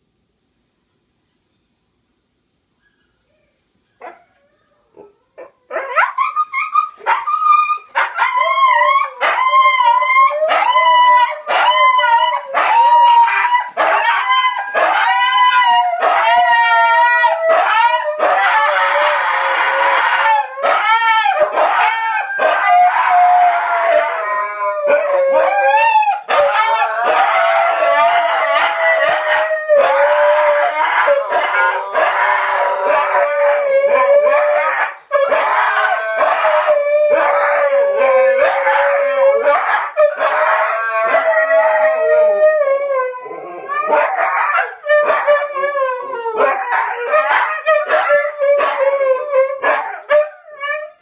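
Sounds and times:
dogs howling: 4.0s - 51.0s
dog yips: 5.7s - 9.5s.

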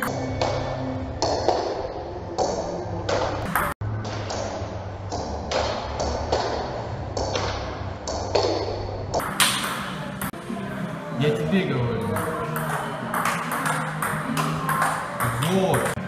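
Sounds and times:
ball bouncing on table: 9.2s - 10.4s, 12.1s - 16.0s
ball hitting table tennis paddles: 9.2s - 10.4s, 12.1s - 16.0s.

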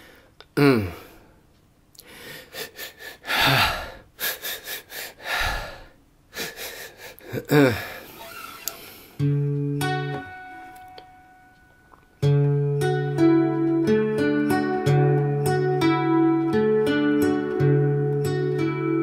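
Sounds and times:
man gasping and sighing: 0.0s - 1.4s, 2.0s - 8.1s
acoustic guitar chord: 12.2s - 19.0s.

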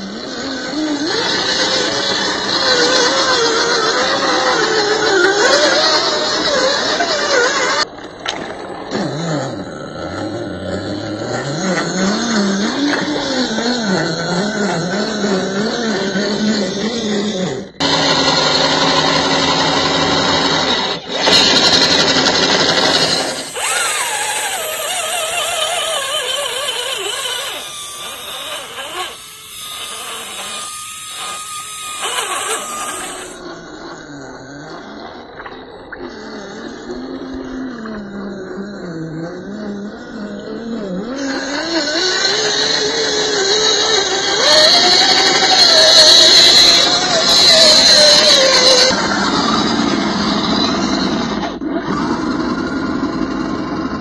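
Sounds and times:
wheels churning through mud: 21.2s - 33.4s
electric motor whining: 21.2s - 33.5s.

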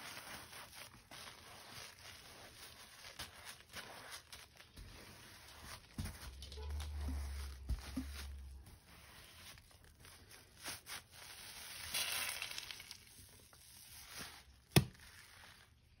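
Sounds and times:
soapy sponge squeezed: 10.5s - 15.8s.

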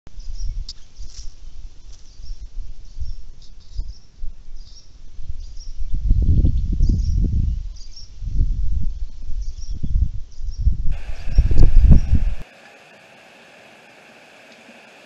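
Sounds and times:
wind rumbling on microphone: 0.1s - 12.4s.

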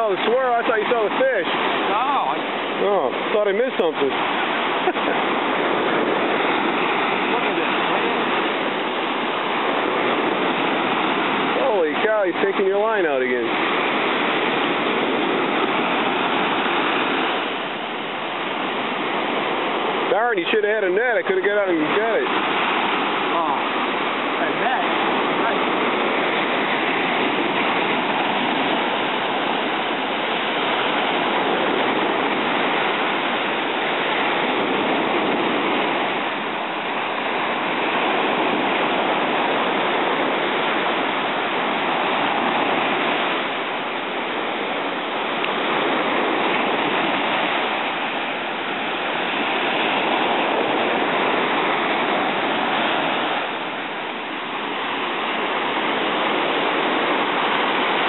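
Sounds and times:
ocean surf breaking on sand: 0.0s - 58.0s.

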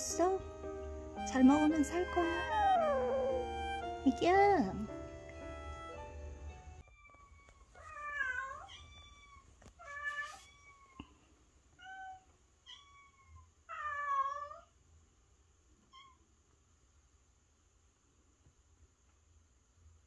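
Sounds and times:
kitten meowing: 11.8s - 14.6s.

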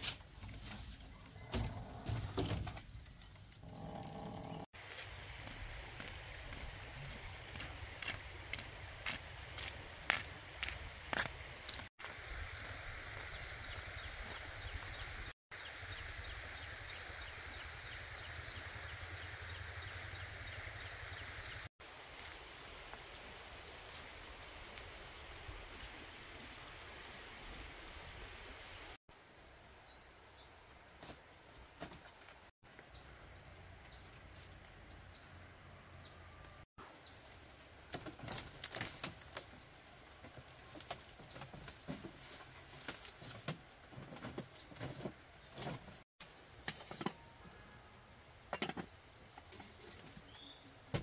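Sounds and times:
birds chirping: 0.6s - 4.7s, 39.3s - 46.0s
footsteps on bamboo floor: 4.8s - 11.9s
outdoor hiss: 11.2s - 29.6s.

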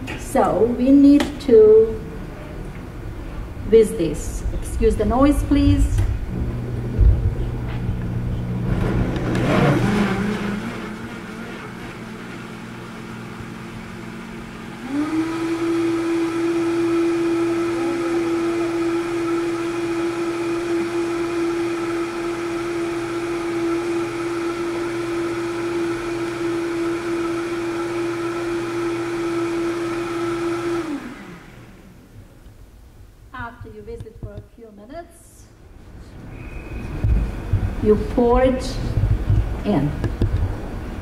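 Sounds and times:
blender motor whine: 6.3s - 31.9s.

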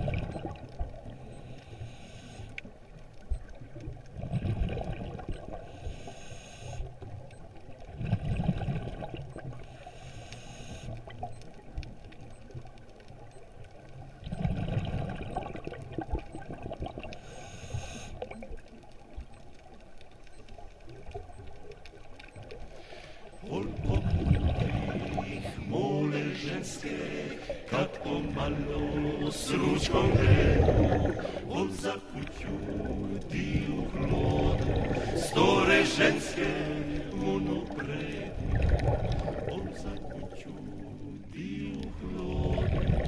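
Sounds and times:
exhaled air bubbling: 0.0s - 1.6s, 2.6s - 6.0s, 6.8s - 9.8s, 10.8s - 43.0s
regulator inhalation hiss: 1.6s - 2.6s, 5.7s - 6.9s, 9.7s - 11.0s, 17.2s - 18.2s.

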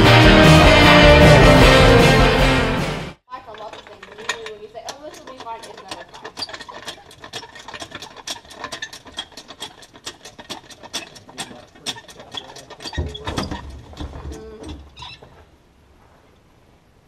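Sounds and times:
low rumble of metal handling: 3.3s - 16.6s
ratchet wrench clicking rapidly: 3.7s - 13.6s.

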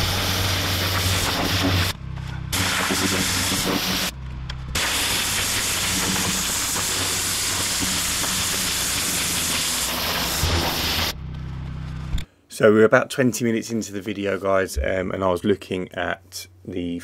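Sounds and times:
pressure washer spray hissing: 0.0s - 1.9s, 2.5s - 4.1s, 4.8s - 11.2s
pressure washer engine hum: 0.0s - 4.2s.

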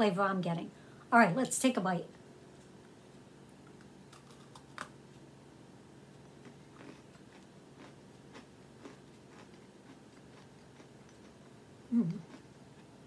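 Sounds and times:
biting into crunchy cookie: 4.1s - 5.0s, 6.3s - 13.0s
quiet chewing: 6.1s - 13.0s.

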